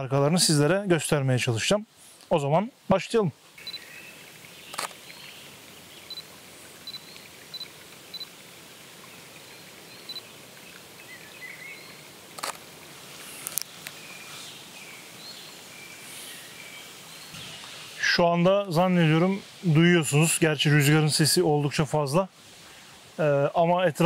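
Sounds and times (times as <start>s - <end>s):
songbirds chirping: 0.0s - 24.0s
wind in forest: 0.0s - 24.0s
sharp clicks: 4.7s - 5.0s, 12.4s - 12.6s.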